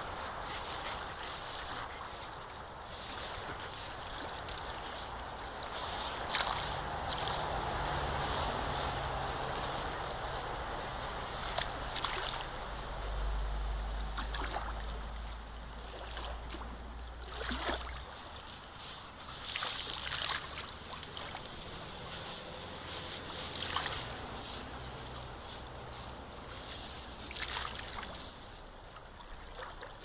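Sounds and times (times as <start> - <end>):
dog digging in sand: 0.0 - 12.4, 17.6 - 28.4
small waves lapping: 0.0 - 30.0.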